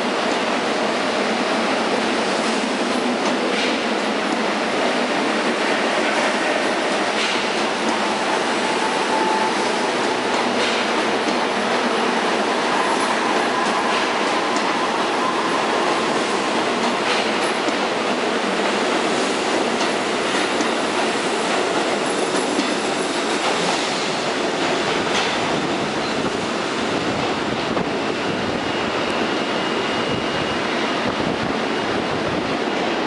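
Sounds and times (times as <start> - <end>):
subway train wheels rumbling: 0.0 - 33.0.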